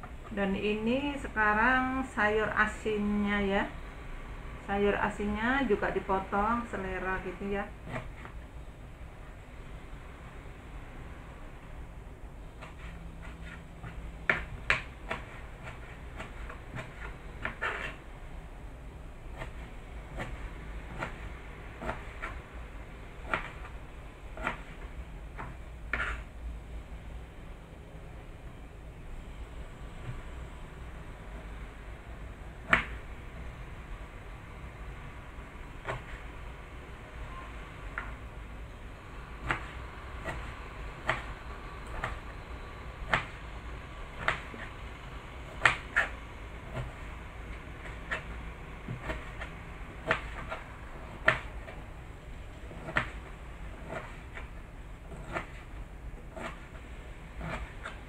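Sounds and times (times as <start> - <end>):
knife chopping on plastic board: 12.6 - 18.0, 19.3 - 22.4, 23.2 - 23.8, 24.4 - 26.2, 32.6 - 33.0, 35.8 - 36.2, 39.4 - 42.3, 43.0 - 43.4, 44.2 - 44.8, 45.5 - 51.8, 52.6 - 58.0.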